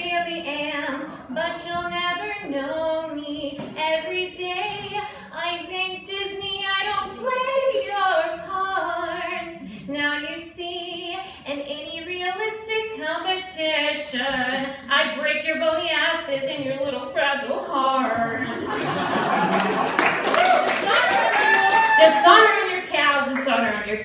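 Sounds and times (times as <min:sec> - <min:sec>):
woman singing into a microphone: 0:00.0 - 0:18.5.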